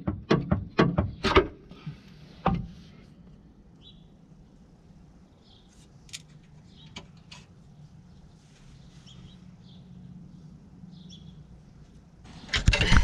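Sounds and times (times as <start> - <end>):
bird chirps: 8.1 - 11.5.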